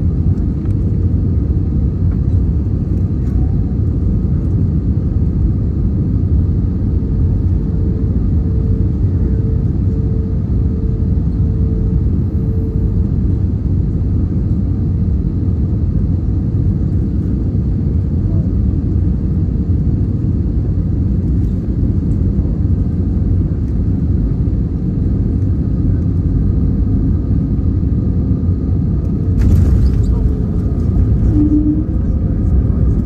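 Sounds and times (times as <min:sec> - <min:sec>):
wheels and engines rumbling: 0:28.9 - 0:33.0.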